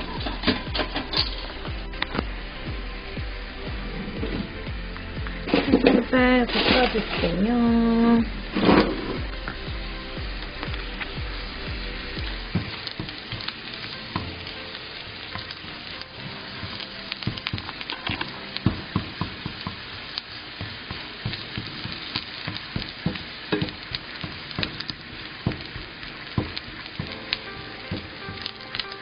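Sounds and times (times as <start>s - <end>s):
vegetables sizzling in oil: 0.0s - 29.0s
spatula tapping pan: 12.2s - 14.5s, 16.6s - 29.0s.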